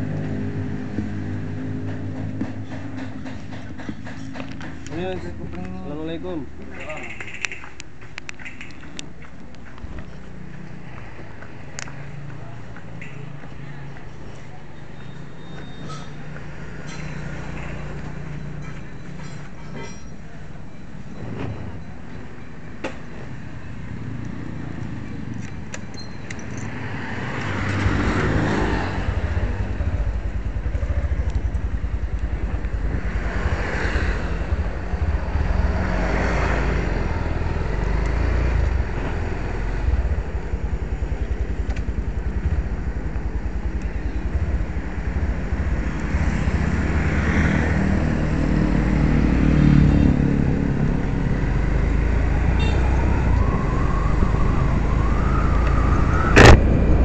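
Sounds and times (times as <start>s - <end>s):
traffic passing: 0.0s - 57.0s
motorcycle engine running: 27.8s - 55.6s
wind on microphone: 50.9s - 57.0s.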